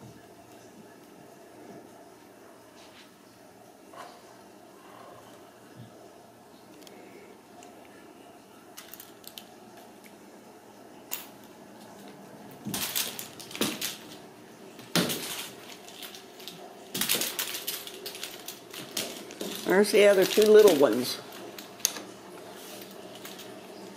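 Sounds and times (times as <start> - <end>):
small hard objects clattering: 8.8 - 9.9, 11.1 - 14.2, 14.8 - 23.9.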